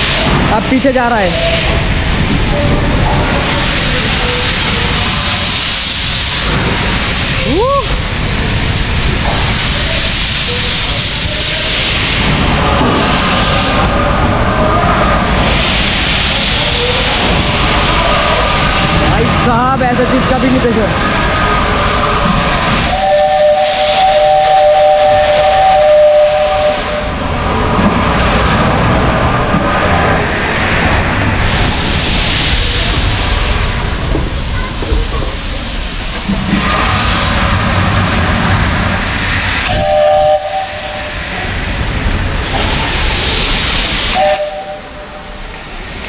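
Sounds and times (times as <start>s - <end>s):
steam hissing: 0.0s - 46.0s
steam whistle two-note blast: 22.9s - 27.1s, 39.7s - 41.1s, 44.1s - 44.9s.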